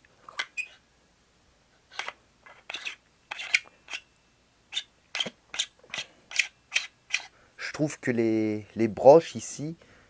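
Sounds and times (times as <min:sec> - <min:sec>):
metal scrapes and clicks: 0:01.9 - 0:04.0.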